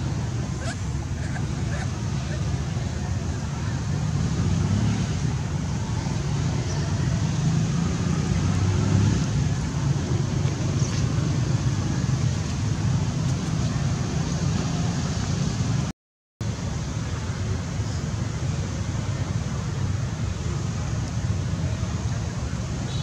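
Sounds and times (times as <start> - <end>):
low outdoor rumble: 0.0 - 23.0.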